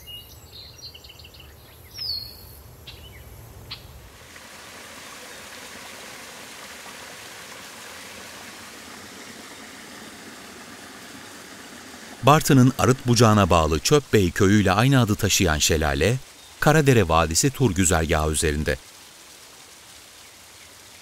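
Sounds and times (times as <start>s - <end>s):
birds chirping: 0.0s - 4.0s, 8.4s - 18.8s
waterfall rushing: 4.1s - 20.0s.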